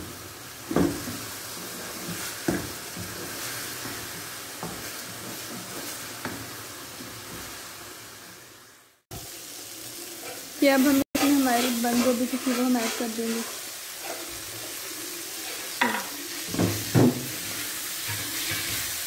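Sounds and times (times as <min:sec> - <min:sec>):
food sizzling in oil: 0:00.0 - 0:19.0
spatula knocking a pan: 0:00.7 - 0:01.3, 0:02.1 - 0:06.5, 0:15.8 - 0:17.4.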